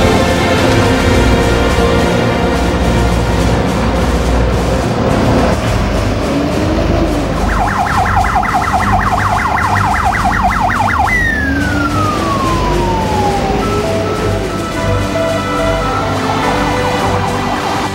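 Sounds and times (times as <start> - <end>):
vehicle rumble: 0.0 - 17.9
fire engine siren: 6.4 - 17.9.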